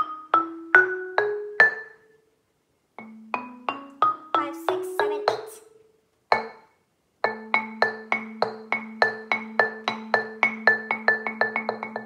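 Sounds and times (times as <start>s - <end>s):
marimba playing rising scale: 0.0s - 2.0s, 3.0s - 5.8s.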